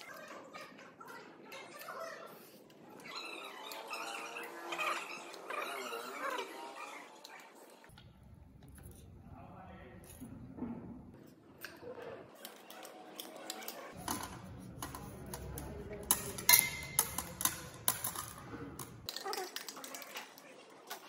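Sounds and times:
glass pieces clinking: 0:14.0 - 0:20.2.

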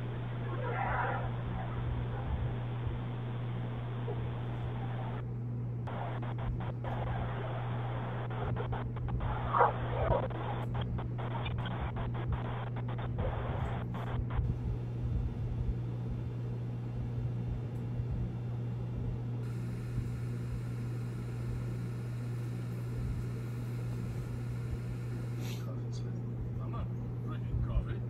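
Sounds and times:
low hum with hiss: 0:00.0 - 0:28.0.

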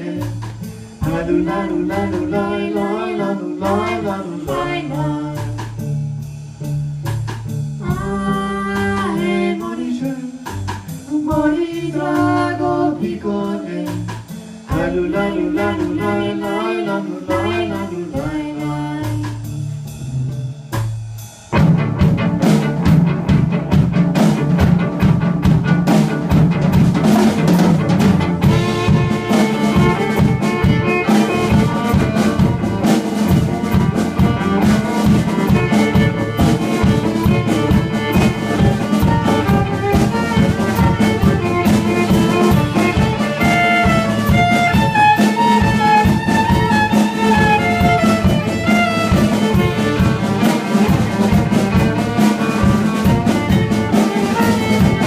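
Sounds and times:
bass: 0:00.0 - 0:55.0
drum kit beat: 0:00.0 - 0:55.0
violin melody: 0:21.7 - 0:55.0.

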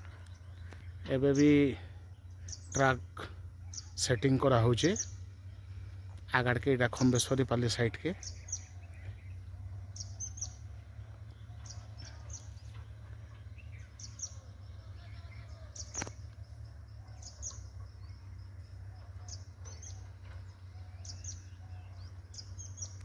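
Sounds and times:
birds chirping: 0:00.0 - 0:23.0
steady low rumble: 0:00.0 - 0:23.0
sharp click: 0:15.9 - 0:16.4.

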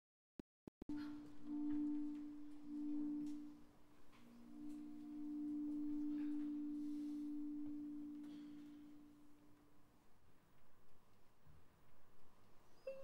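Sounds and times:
orchestra holding low notes: 0:00.9 - 0:09.6.

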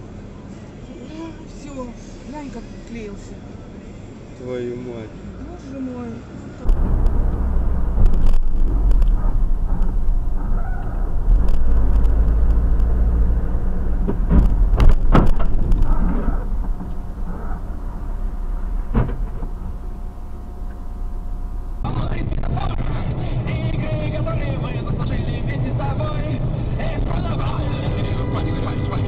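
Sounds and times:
truck engine and road rumble: 0:00.0 - 0:29.0
sharp knocks: 0:14.0 - 0:17.7, 0:18.7 - 0:19.8.

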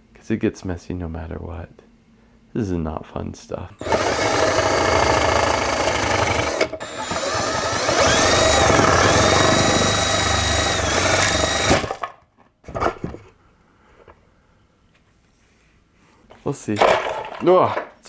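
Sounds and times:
drill motor whine: 0:03.8 - 0:12.0.

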